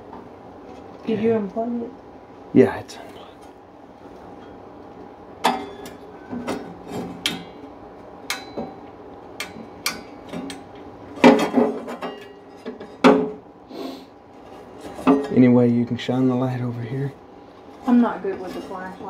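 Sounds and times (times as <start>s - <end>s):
metal tools clinking on sheet metal: 11.2s - 13.0s.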